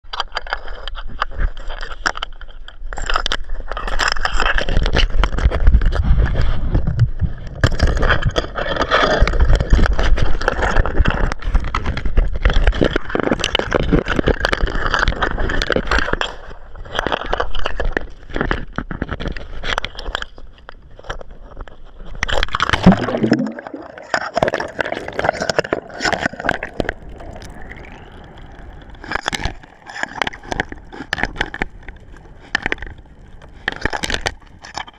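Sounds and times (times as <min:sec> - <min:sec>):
underwater gurgling and crackle: 0:00.0 - 0:34.9
sea water splashing over microphone: 0:22.3 - 0:34.9
heavy low rumble: 0:25.9 - 0:34.9.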